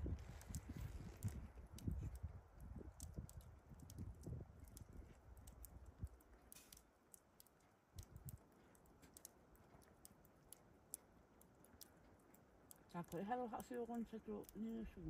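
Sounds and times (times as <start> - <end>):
faint clicks: 2.9 - 13.8.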